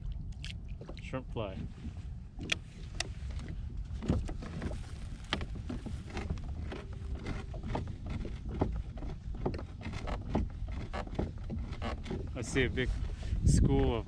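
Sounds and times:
wind rumble on microphone: 0:00.0 - 0:14.0
fishing gear clicks and knocks: 0:01.7 - 0:12.5.

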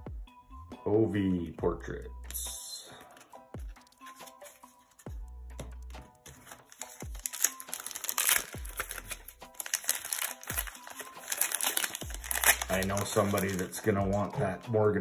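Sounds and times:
background music with bass notes: 0:00.0 - 0:07.8, 0:08.4 - 0:15.0
wrapper crinkling and tearing: 0:06.4 - 0:14.3.

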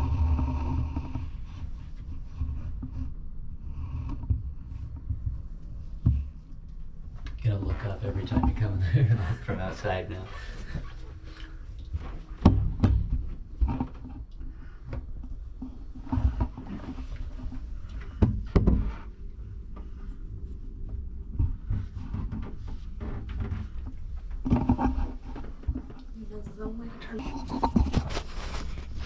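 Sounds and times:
low rumble: 0:00.0 - 0:13.6
dull knocks and thumps: 0:11.9 - 0:19.2.

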